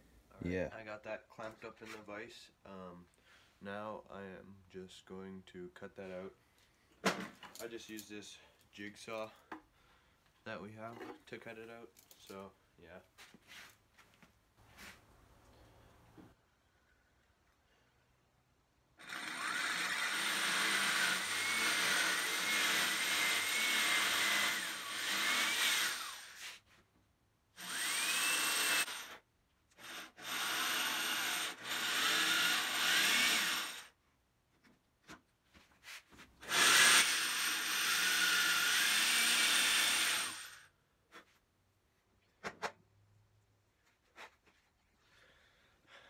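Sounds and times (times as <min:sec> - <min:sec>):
jigsaw cutting wood: 0:19.0 - 0:26.6, 0:27.6 - 0:29.2, 0:29.8 - 0:33.9, 0:36.4 - 0:40.7.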